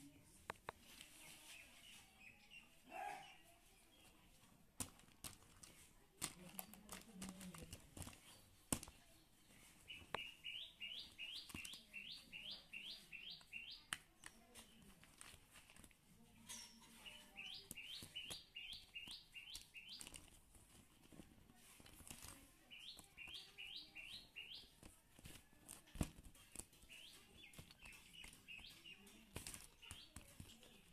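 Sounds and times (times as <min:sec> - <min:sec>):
plastic toy figures clicking: 0:04.8 - 0:09.0, 0:11.0 - 0:11.9, 0:24.7 - 0:30.9
bird chirping: 0:09.4 - 0:14.8, 0:16.5 - 0:20.3, 0:22.7 - 0:24.8, 0:26.7 - 0:30.8.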